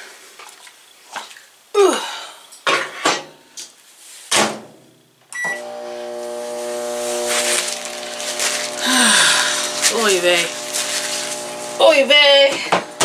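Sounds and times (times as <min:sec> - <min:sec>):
microwave keypad beep: 0:05.4 - 0:05.6
microwave humming: 0:05.4 - 0:13.0.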